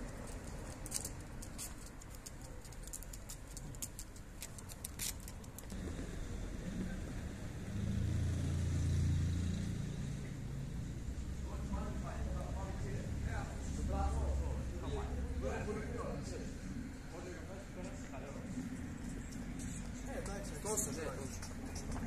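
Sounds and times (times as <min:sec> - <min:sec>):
vehicle passing with low rumble: 0:05.7 - 0:22.0.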